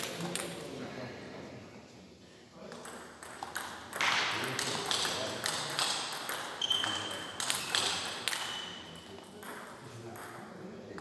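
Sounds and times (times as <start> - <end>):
short high squeaks: 6.6 - 7.8.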